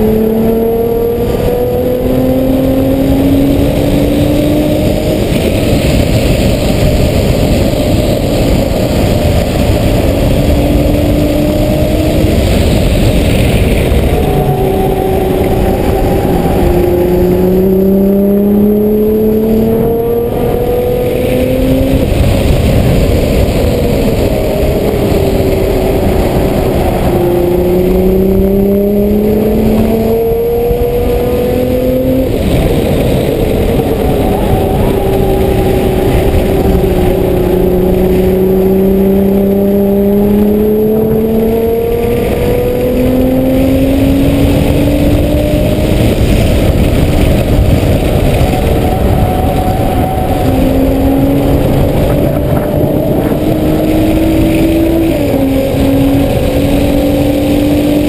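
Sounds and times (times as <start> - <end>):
car engine accelerating: 0.0 - 58.0
road and wind noise: 0.0 - 58.0.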